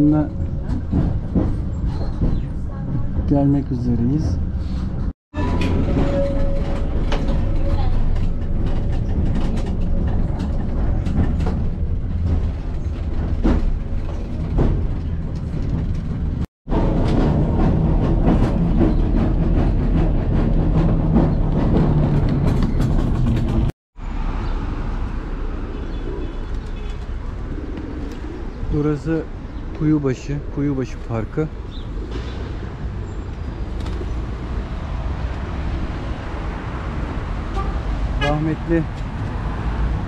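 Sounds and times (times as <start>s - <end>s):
street ambience: 0.0s - 40.0s
tram rumbling on rails: 0.0s - 40.0s
wheels clicking and clattering: 5.4s - 23.7s.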